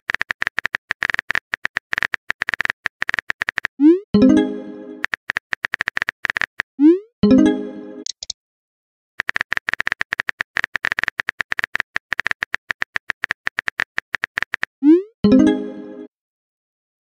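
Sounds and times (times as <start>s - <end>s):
keyboard typing clicks: 0.0s - 3.7s, 5.0s - 6.6s, 8.0s - 8.4s, 9.2s - 14.7s
message chime: 4.2s - 5.0s, 7.2s - 8.0s.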